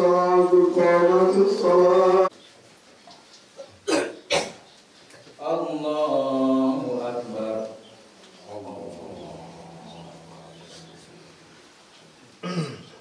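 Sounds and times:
man chanting recitation: 0.0 - 2.4, 5.4 - 11.7.

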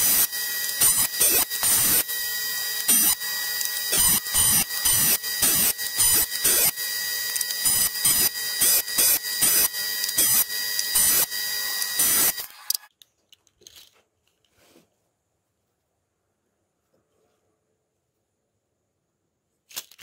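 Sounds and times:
wood cutting surge: 0.0 - 12.8
jointer whining: 0.0 - 12.9
faint handling sounds: 13.0 - 18.6.

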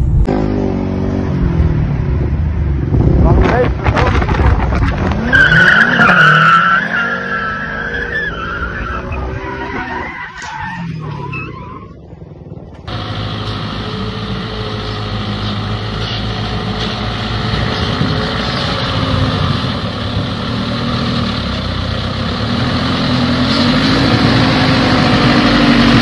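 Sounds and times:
tyres squealing: 5.2 - 11.9
car engine revving: 12.9 - 26.0
truck engine running: 12.9 - 26.0.

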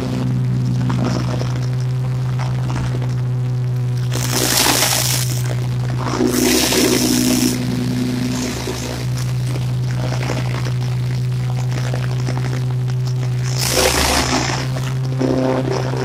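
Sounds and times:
riding mower engine humming: 0.0 - 16.0
mower crackling through dry leaves: 4.1 - 9.6, 13.3 - 15.8.

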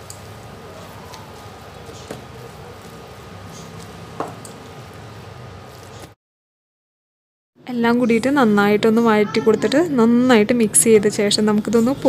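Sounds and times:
mixture squishing: 0.0 - 5.9.

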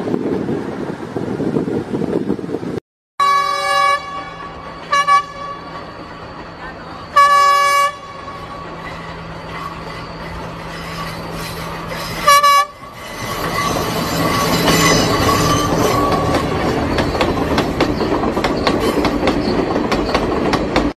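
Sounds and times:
train horn blasts: 3.2 - 5.8, 7.1 - 8.6, 12.1 - 13.0
train wheels clattering over rail joints: 8.6 - 20.9.

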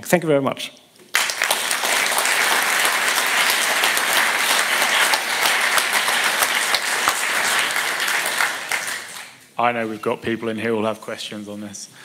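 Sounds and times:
audience applauding: 1.1 - 9.4.

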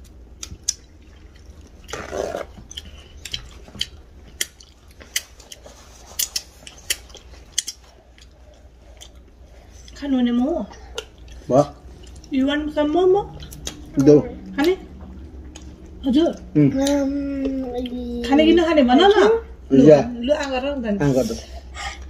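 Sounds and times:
wet chewing and lip smacks: 0.0 - 10.0, 10.9 - 12.4, 13.2 - 17.0.

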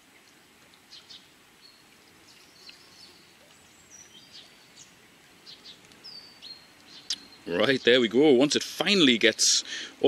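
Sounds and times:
outdoor background hiss: 0.0 - 10.0
small birds chirping and whistling: 0.9 - 8.0.

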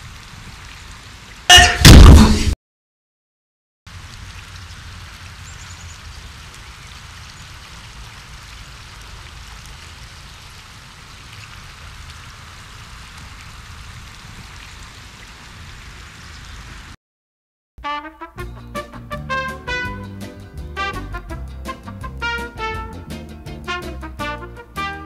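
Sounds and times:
outdoor rushing noise: 1.5 - 2.6.

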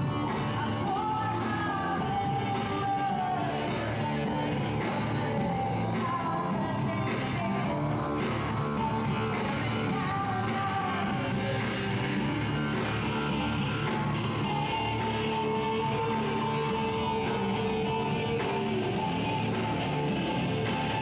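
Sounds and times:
bass guitar: 0.0 - 21.0
electric guitar: 0.0 - 21.0
keyboard: 0.0 - 21.0
woman singing into a microphone: 0.5 - 11.6.

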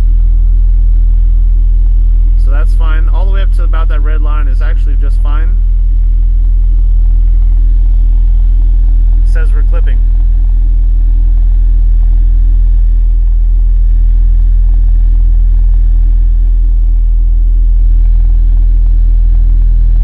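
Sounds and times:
distorted subwoofer bass tone: 0.0 - 20.0.

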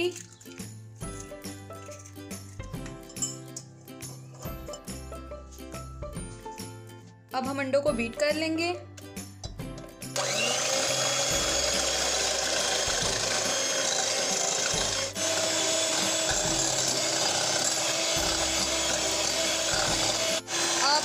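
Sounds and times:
electric hand mixer whirring: 10.1 - 21.0.

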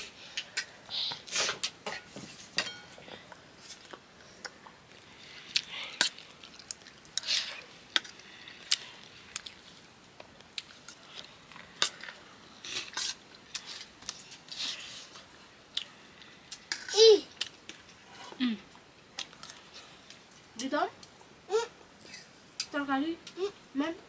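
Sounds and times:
metal dishes and spoons clinking: 1.6 - 3.0.

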